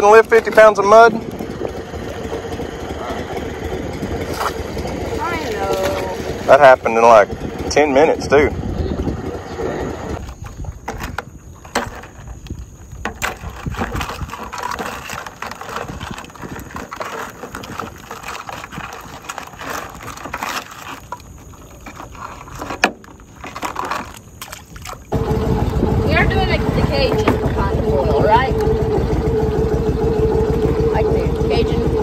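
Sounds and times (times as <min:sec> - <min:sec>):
boat motor hum: 0:00.0 - 0:32.0
water sloshing and dripping: 0:04.0 - 0:06.8, 0:10.2 - 0:32.0.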